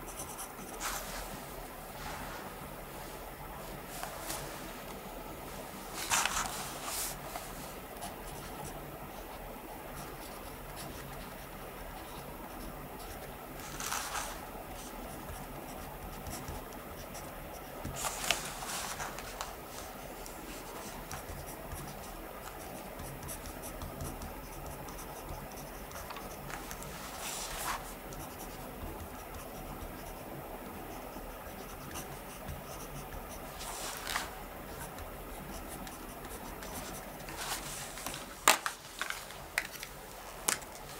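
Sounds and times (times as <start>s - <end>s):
pen scratching on paper: 0.1s - 1.1s, 8.0s - 37.8s
paper rustling: 5.9s - 7.6s, 13.6s - 14.4s, 18.0s - 21.1s, 33.5s - 34.8s, 36.2s - 40.9s.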